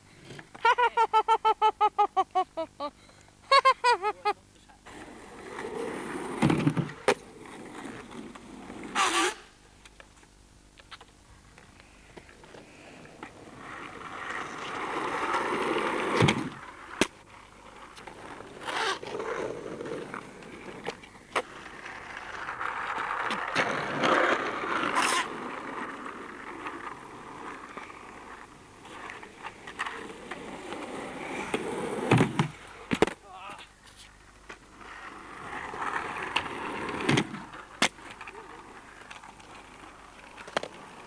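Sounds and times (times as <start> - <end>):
skateboard wheels rolling on asphalt: 4.8 - 41.0
skateboard clacks: 10.8 - 33.2, 34.2 - 41.0.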